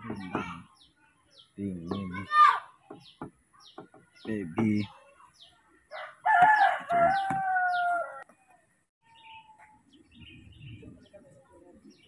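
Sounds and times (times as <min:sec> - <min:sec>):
rooster crowing: 0:05.9 - 0:08.2.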